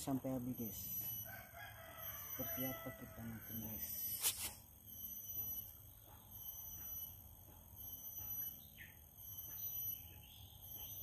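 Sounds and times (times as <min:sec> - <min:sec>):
bird chirp: 0:03.5 - 0:11.0.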